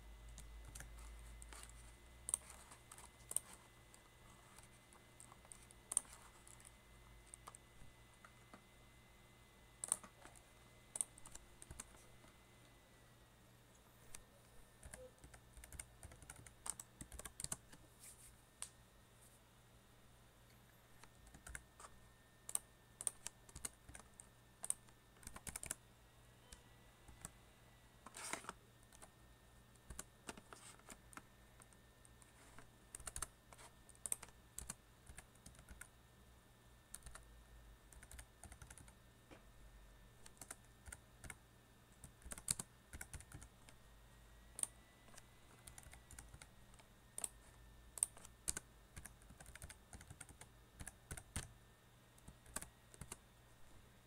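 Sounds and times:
faint low hum: 0:00.0 - 0:54.0
keyboard typing clicks: 0:00.3 - 0:07.6, 0:09.8 - 0:12.0, 0:14.1 - 0:17.8, 0:21.0 - 0:25.8, 0:29.8 - 0:32.2, 0:32.9 - 0:35.9, 0:36.9 - 0:37.2, 0:37.9 - 0:39.0, 0:40.2 - 0:41.4, 0:42.0 - 0:43.8, 0:44.5 - 0:51.6, 0:52.2 - 0:53.2.

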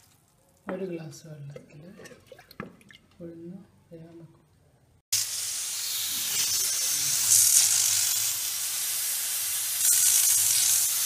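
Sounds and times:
pressure cooker hissing: 0:05.2 - 0:11.0.

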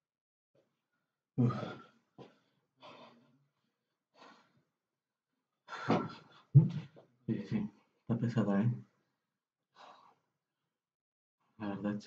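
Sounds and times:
man sighing: 0:01.4 - 0:01.8
man breathing hard: 0:01.4 - 0:03.4, 0:04.1 - 0:04.6.

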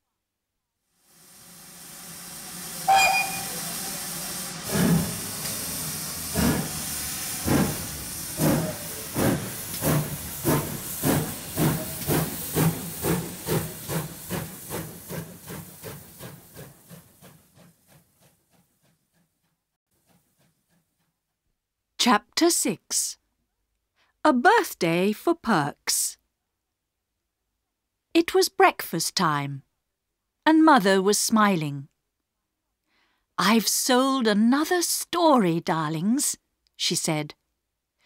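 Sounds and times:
hiss of steam: 0:00.9 - 0:17.4
steam locomotive chuffing: 0:01.2 - 0:21.2
sharp whistle note: 0:02.9 - 0:03.6.

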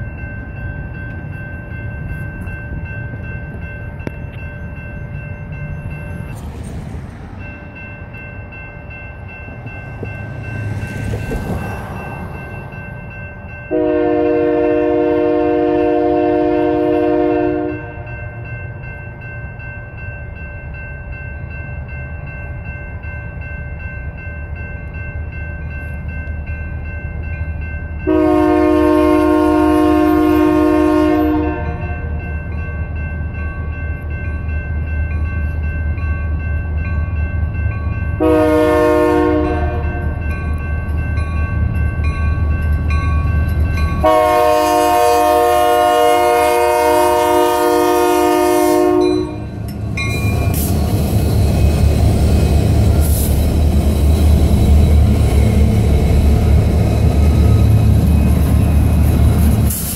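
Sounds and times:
crossing bell ringing: 0:00.0 - 0:59.9
locomotive air horn: 0:13.7 - 0:18.1, 0:28.0 - 0:32.1, 0:38.2 - 0:40.2, 0:44.0 - 0:49.6
locomotive engine rumble: 0:25.3 - 0:59.9.

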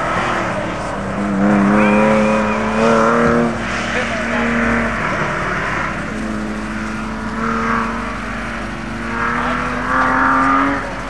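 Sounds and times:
car engine revving: 0:00.0 - 0:11.0
tyre squeals: 0:01.2 - 0:04.2.

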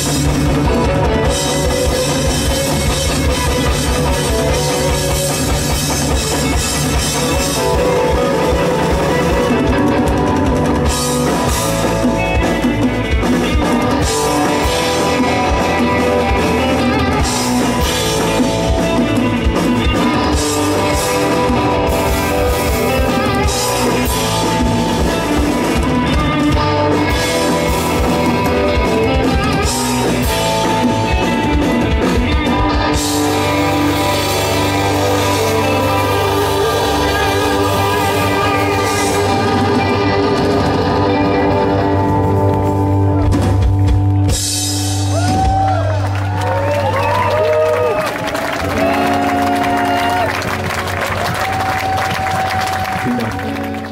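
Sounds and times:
drum kit with busy cymbals: 0:00.0 - 0:46.2
bass guitar: 0:00.0 - 0:53.9
distorted electric guitars: 0:00.0 - 0:53.9.

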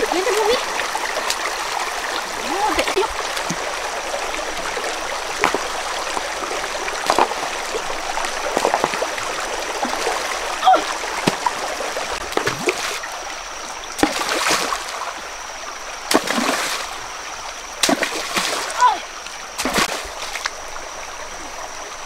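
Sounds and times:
rocky stream running: 0:00.0 - 0:22.0
stones splashing into water: 0:04.8 - 0:13.0, 0:14.0 - 0:15.0, 0:16.1 - 0:17.0, 0:17.8 - 0:18.9, 0:19.6 - 0:20.6.

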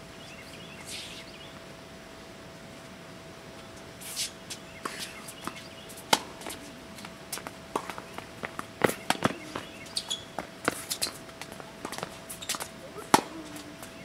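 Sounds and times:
tennis ball and shoes knocking: 0:05.4 - 0:14.0.

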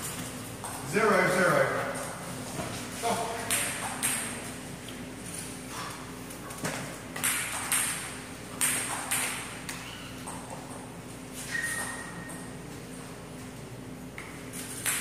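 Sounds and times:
table tennis ball bouncing: 0:03.4 - 0:04.5, 0:06.7 - 0:11.0, 0:14.2 - 0:15.0.

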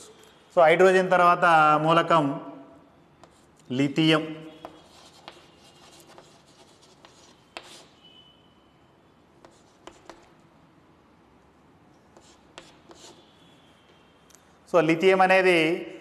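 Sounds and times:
chalk tapping on board: 0:04.6 - 0:07.9, 0:09.4 - 0:10.3, 0:12.1 - 0:13.2
chalk scratching on chalkboard: 0:04.6 - 0:08.0, 0:09.4 - 0:10.3, 0:12.1 - 0:13.3.

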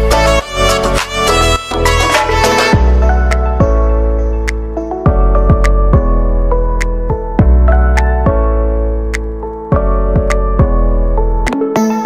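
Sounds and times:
instrumental music with fiddle lead: 0:00.0 - 0:03.1.

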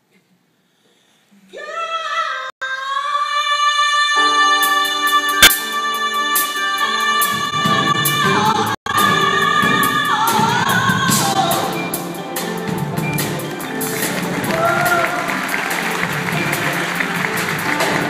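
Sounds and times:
woman singing: 0:01.5 - 0:12.4
band playing: 0:04.4 - 0:18.0.

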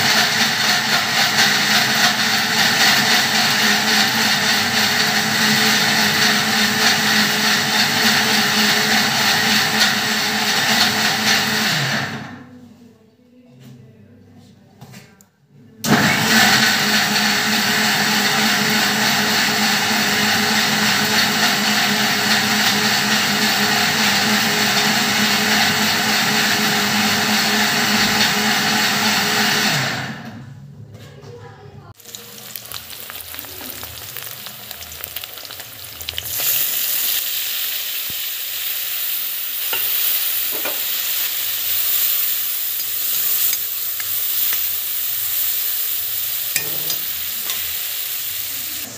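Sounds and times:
mixer grinder running: 0:00.0 - 0:12.4, 0:15.9 - 0:30.5, 0:32.0 - 0:48.9
cheese cubes sizzling in oil: 0:32.0 - 0:48.9.

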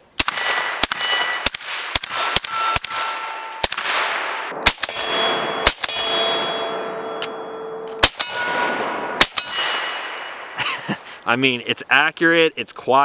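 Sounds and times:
suppressed rifle shots: 0:00.2 - 0:06.2, 0:07.9 - 0:10.6
steel targets ringing: 0:00.9 - 0:01.5, 0:02.1 - 0:10.6
person talking: 0:11.2 - 0:13.0.

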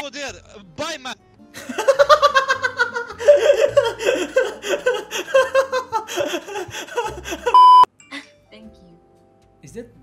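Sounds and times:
man laughing hard: 0:01.6 - 0:07.6.

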